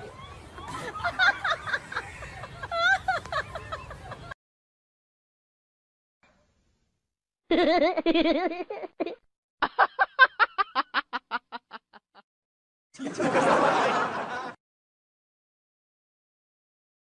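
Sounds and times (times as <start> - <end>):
person laughing: 0.6 - 4.4, 7.5 - 12.2.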